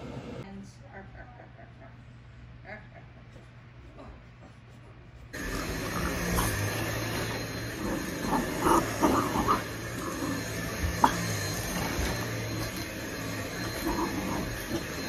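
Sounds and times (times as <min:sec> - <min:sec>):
vacuum cleaner running: 0:00.0 - 0:00.4, 0:05.4 - 0:15.0.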